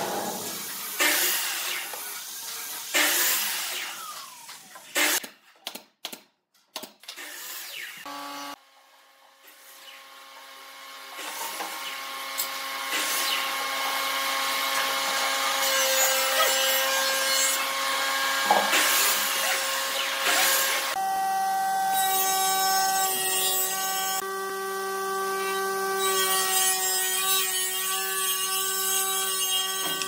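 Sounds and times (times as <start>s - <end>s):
pneumatic nailer shots: 0.0s - 2.2s, 2.9s - 5.8s.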